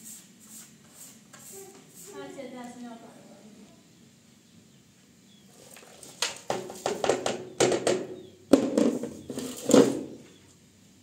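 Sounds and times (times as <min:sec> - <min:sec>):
straw broom scraping dustpan: 0:00.0 - 0:02.3, 0:05.5 - 0:07.3, 0:08.8 - 0:10.2.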